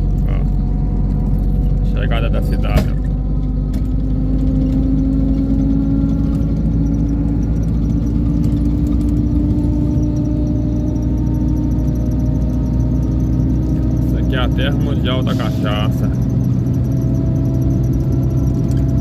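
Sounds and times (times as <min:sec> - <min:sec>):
bus engine drone: 0:00.0 - 0:19.0
road noise: 0:00.0 - 0:19.0.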